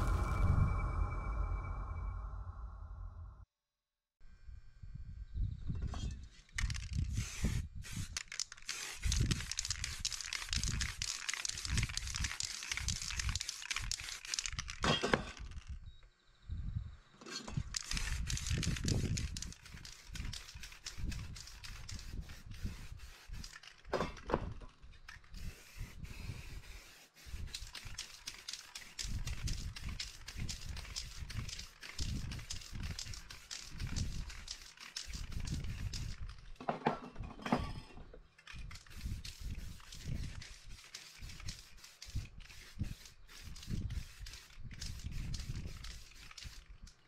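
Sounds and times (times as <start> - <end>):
spray paint can hissing: 6.6 - 14.8, 17.6 - 23.9, 25.1 - 36.4, 38.6 - 47.0.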